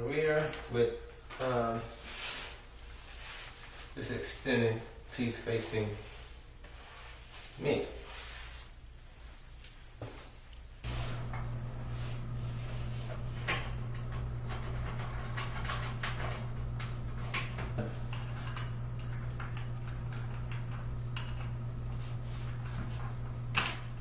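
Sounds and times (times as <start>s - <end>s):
low hum: 10.8s - 24.0s.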